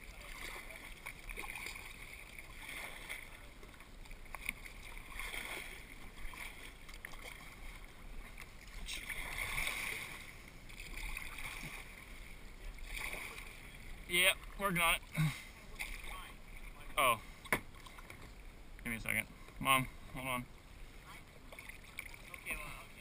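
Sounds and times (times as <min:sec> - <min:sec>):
paddle splashing water: 0:00.0 - 0:18.6, 0:19.3 - 0:23.0
paddle knocking against boat: 0:17.4 - 0:18.3.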